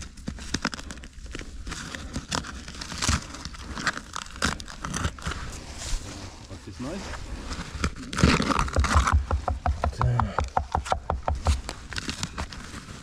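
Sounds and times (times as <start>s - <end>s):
digging in clay soil: 0.0s - 13.0s
soil scraping and rustling: 0.0s - 13.0s
knocks and scuffs: 8.6s - 11.8s.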